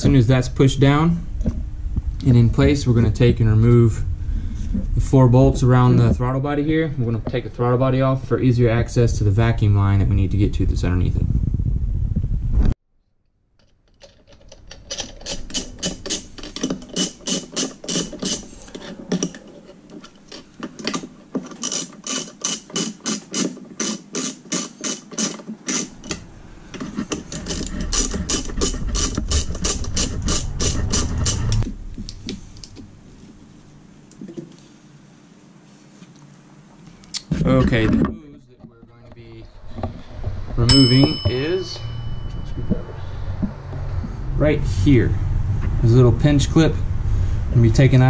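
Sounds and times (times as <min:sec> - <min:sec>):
low rumble: 0:00.8 - 0:12.8, 0:41.8 - 0:48.0.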